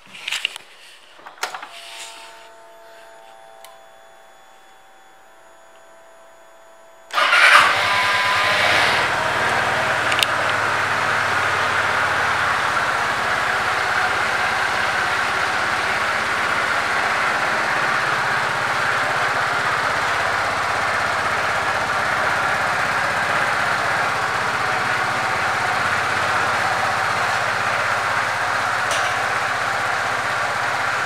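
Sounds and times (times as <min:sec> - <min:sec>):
scooter engine starting and idling: 0:07.0 - 0:31.0.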